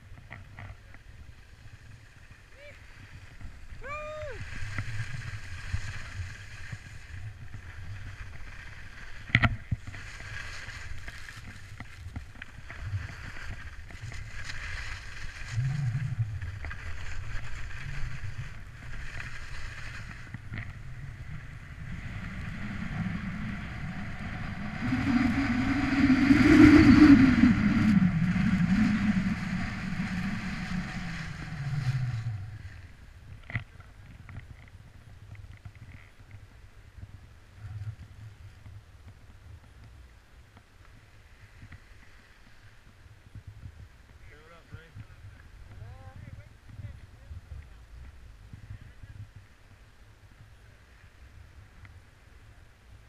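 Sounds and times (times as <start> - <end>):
skis sliding over packed snow: 0.0 - 53.0
wind buffeting microphone: 19.8 - 36.0.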